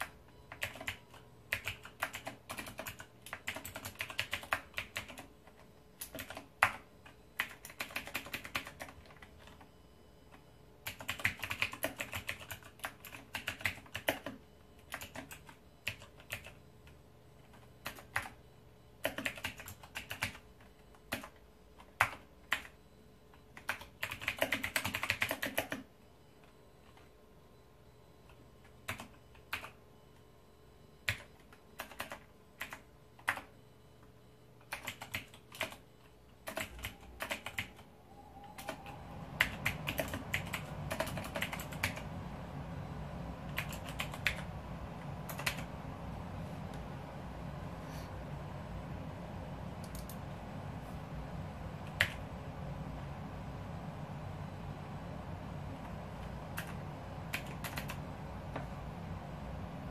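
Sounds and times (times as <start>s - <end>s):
mechanical keyboard typing: 0.0s - 9.7s, 10.3s - 18.4s, 19.0s - 22.8s, 23.4s - 25.9s, 28.3s - 29.8s, 31.0s - 33.5s, 34.6s - 37.8s, 38.5s - 42.1s, 43.5s - 44.5s, 45.3s - 45.7s, 49.8s - 50.2s, 51.8s - 52.2s, 55.8s - 58.0s.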